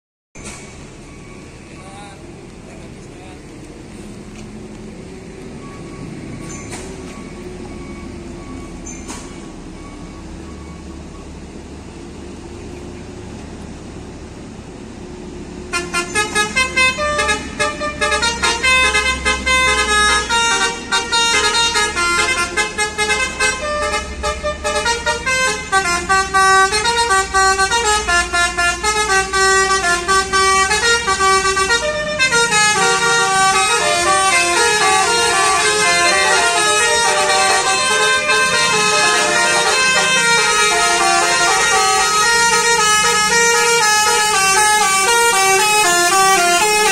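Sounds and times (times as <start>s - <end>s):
bus engine idling: 0.4s - 46.9s
multi-tone bus horns: 15.5s - 46.9s.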